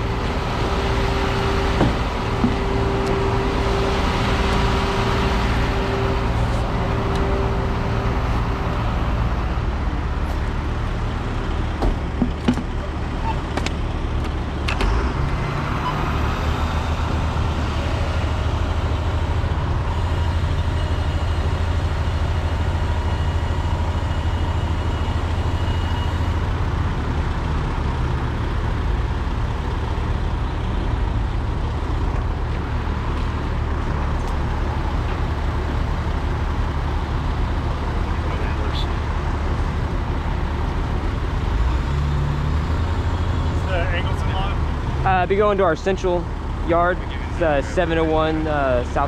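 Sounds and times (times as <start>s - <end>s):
truck engine idling: 0.0s - 49.0s.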